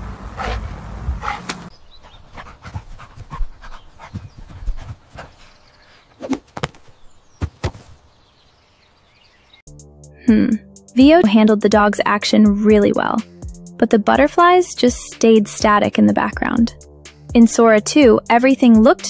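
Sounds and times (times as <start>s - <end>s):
steady low rumble: 0.0s - 1.9s
dog panting: 0.2s - 6.1s.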